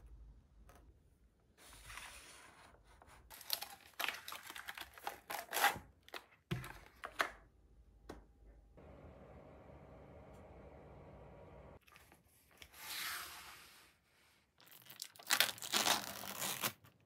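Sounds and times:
paperboard package crinkling: 0:03.3 - 0:07.2.

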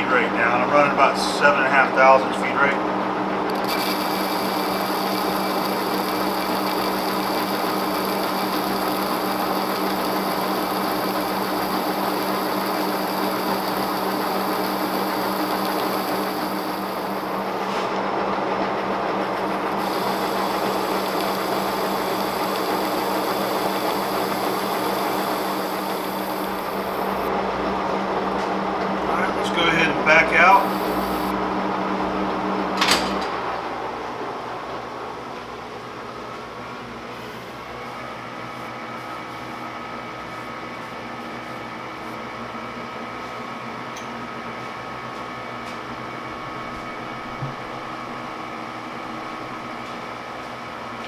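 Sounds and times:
lathe running with humming gears: 0:03.0 - 0:32.4.

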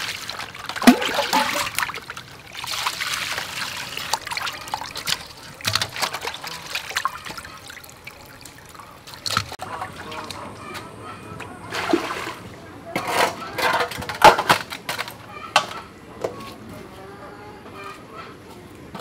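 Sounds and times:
water splashing and trickling: 0:00.0 - 0:10.7, 0:11.4 - 0:13.8
water sloshing in metal bowl: 0:00.0 - 0:10.8, 0:11.4 - 0:14.2.

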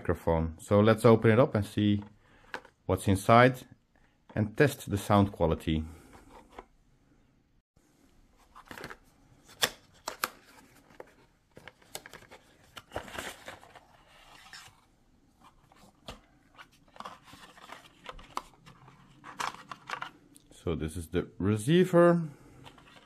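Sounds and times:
packaging rustling and scraping: 0:08.3 - 0:20.2, 0:22.6 - 0:23.0.

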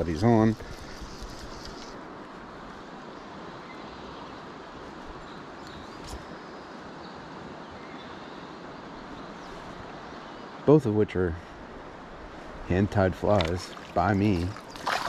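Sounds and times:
small click: 0:01.2 - 0:02.0, 0:05.6 - 0:06.2
river current rushing: 0:11.5 - 0:15.0.

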